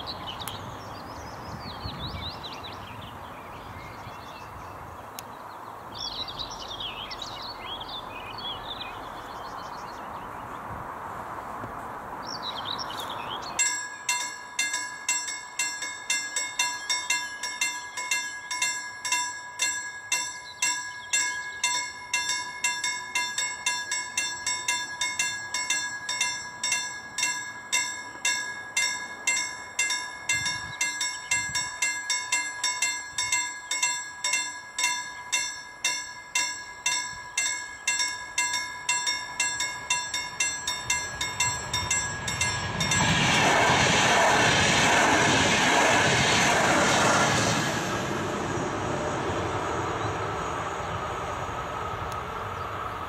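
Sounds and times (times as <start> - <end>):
birds singing: 0.0 - 10.7, 12.2 - 13.7, 20.4 - 21.8
level crossing warning bell: 13.5 - 44.2.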